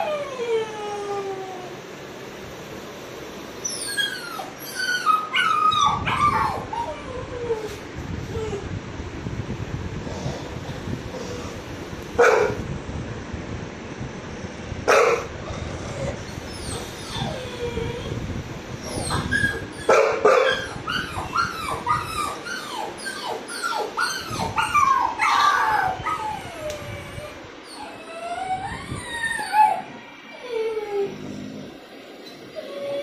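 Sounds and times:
puppy whimpering and whining: 0.0 - 1.7, 3.6 - 8.7, 15.8 - 18.2, 18.8 - 33.0
dog barks: 12.2 - 12.6, 14.9 - 15.3, 19.9 - 20.8.

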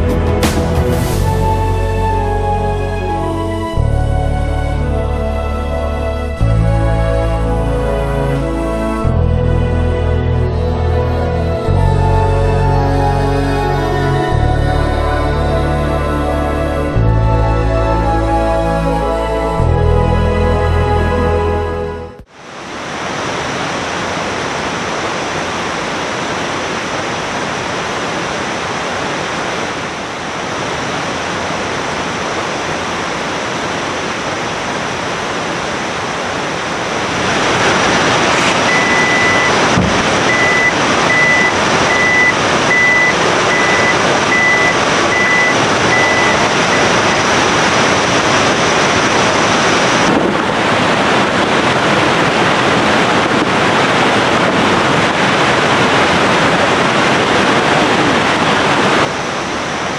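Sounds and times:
river water rushing: 22.3 - 59.9.

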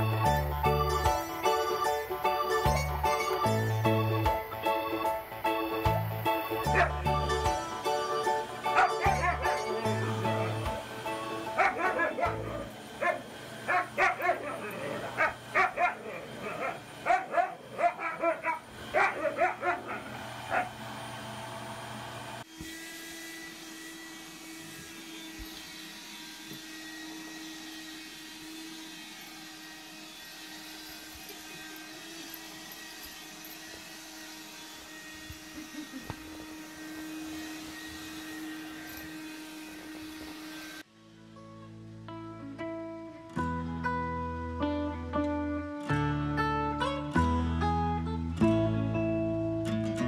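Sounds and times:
handheld vacuum cleaner motor: 0.0 - 40.9
upright vacuum cleaner humming: 0.0 - 40.9
dog barking and yipping: 6.7 - 7.0, 8.6 - 20.8.

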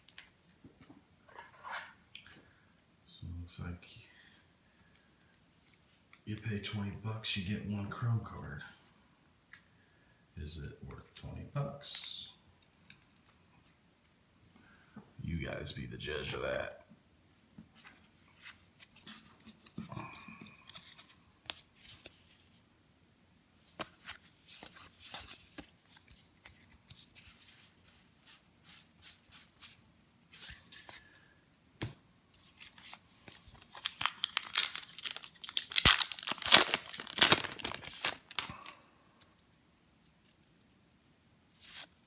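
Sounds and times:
wrapper tearing and crinkling: 32.6 - 38.8.

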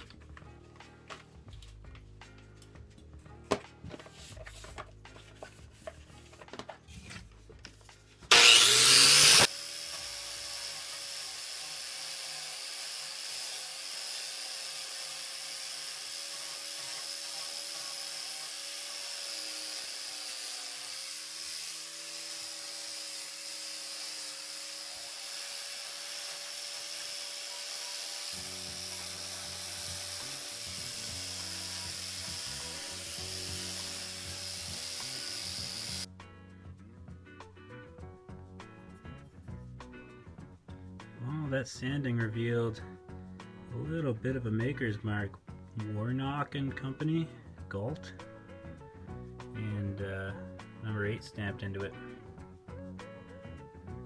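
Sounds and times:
angle grinder whine: 8.3 - 36.1.

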